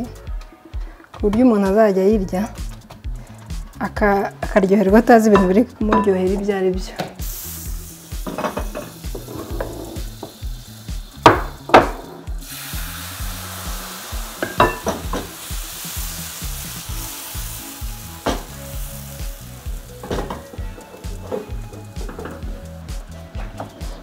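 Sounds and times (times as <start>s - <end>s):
kitchen utensils knocking: 5.2s - 6.3s, 14.4s - 15.3s, 20.0s - 22.4s
batter sizzling in pan: 7.2s - 24.0s.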